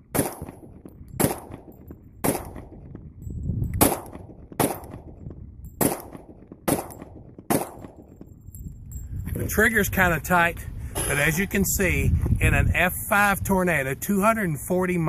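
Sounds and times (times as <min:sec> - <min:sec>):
pistol shots with ringing echo: 0:00.0 - 0:03.1, 0:03.8 - 0:08.3.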